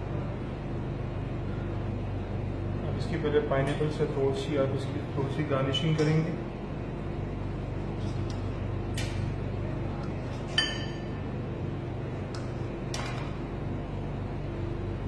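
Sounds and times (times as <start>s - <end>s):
low background hum: 0.0s - 15.0s
short ringing clink: 10.6s - 11.1s.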